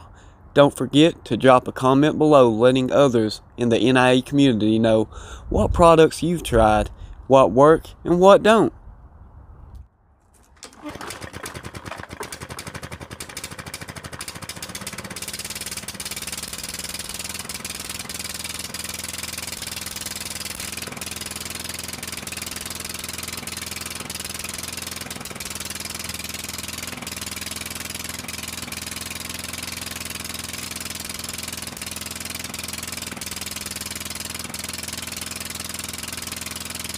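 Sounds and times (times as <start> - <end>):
lawn mower engine running: 10.4 - 36.9.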